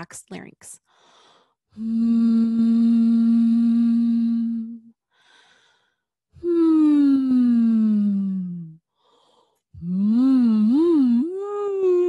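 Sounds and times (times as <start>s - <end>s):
woman humming: 1.8s - 5.0s, 6.4s - 8.8s, 9.8s - 12.0s.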